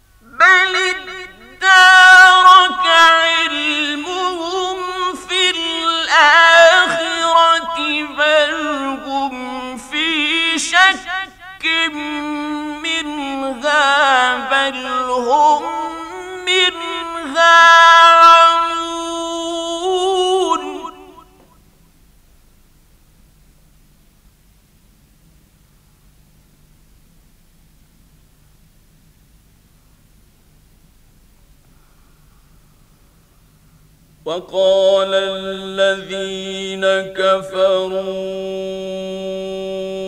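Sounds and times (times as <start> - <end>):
man chanting: 0.2 - 21.4, 34.2 - 40.0.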